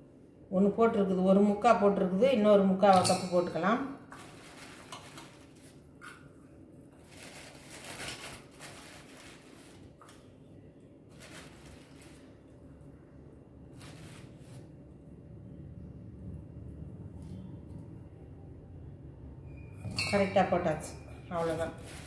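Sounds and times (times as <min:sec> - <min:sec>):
faint rustling and scraping: 0:04.1 - 0:10.3, 0:11.1 - 0:12.5, 0:13.7 - 0:14.8, 0:21.3 - 0:22.0.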